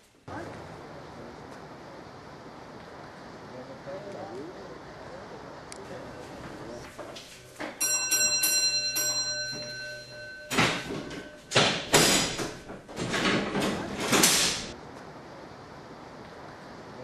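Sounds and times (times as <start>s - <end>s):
signal bell ringing: 7.6s - 12.7s
signal lever clanking and rattling: 8.5s - 14.8s.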